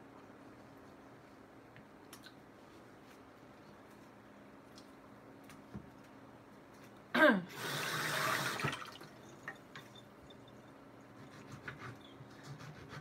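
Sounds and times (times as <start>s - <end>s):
water running into sink: 7.6s - 9.9s.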